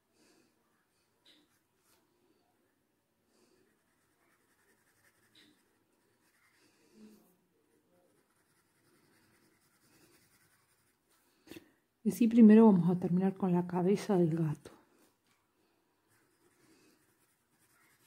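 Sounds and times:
pencil scraping on paper: 3.5 - 7.3, 8.0 - 11.0, 16.1 - 18.0.

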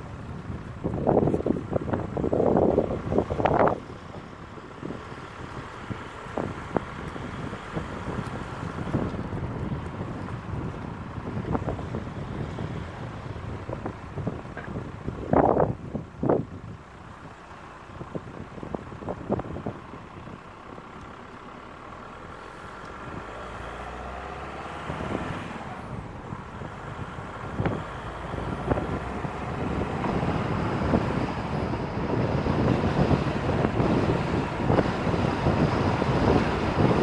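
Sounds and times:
car road and wind noise: 0.0 - 37.0.

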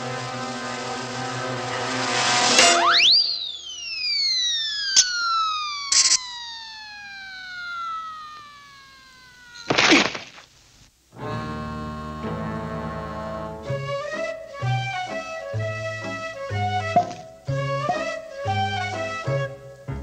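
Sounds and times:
orchestral music: 0.0 - 3.0, 11.2 - 20.0
cartoon whistle: 2.6 - 9.7
cartoon crash: 9.5 - 10.5.

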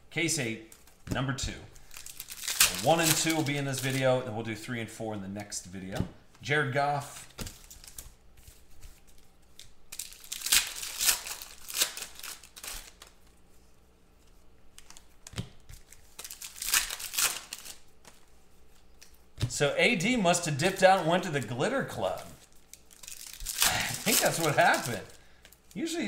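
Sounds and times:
foil wrappers crinkling and tearing: 1.7 - 4.1, 7.2 - 13.4, 14.8 - 19.2, 20.3 - 26.0.

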